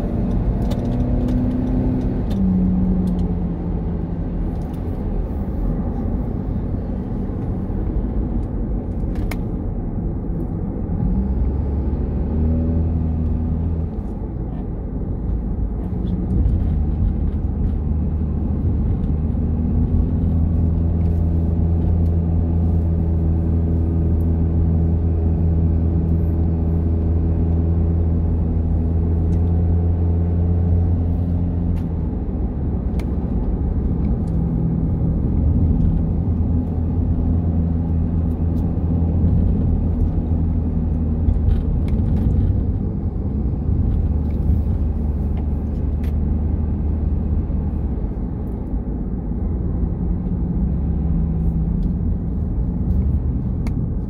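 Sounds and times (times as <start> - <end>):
car engine running: 0.0 - 54.0
road noise: 0.0 - 54.0.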